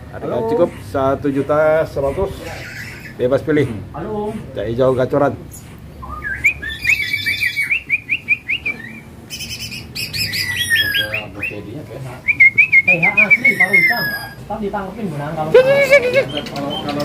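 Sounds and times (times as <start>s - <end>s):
bird song trills and whistles: 6.0s - 14.4s, 15.7s - 17.0s.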